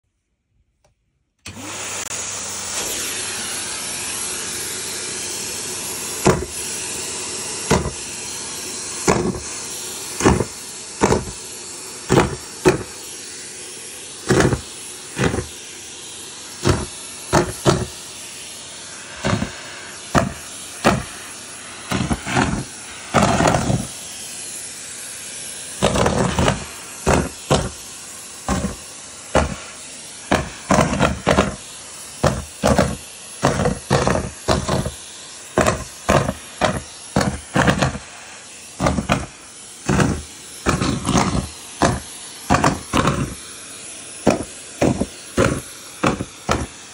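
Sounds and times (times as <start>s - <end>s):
balloons sucked up vacuum wand: 1.4s - 46.9s
vacuum cleaner suction hiss: 1.4s - 46.9s.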